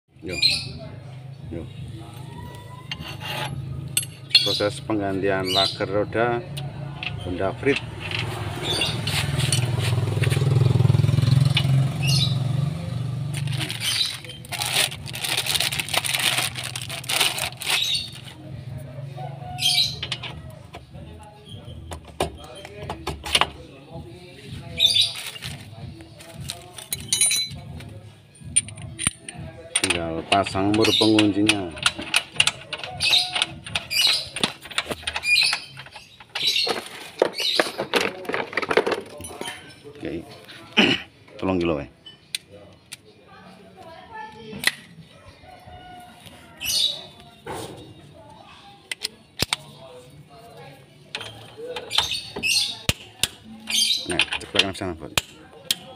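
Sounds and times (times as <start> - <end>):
vehicle engine humming: 1.1 - 22.5
metal tools clicking and scraping: 2.6 - 4.8, 6.6 - 10.4, 19.6 - 20.8, 26.4 - 40.0, 51.1 - 55.9.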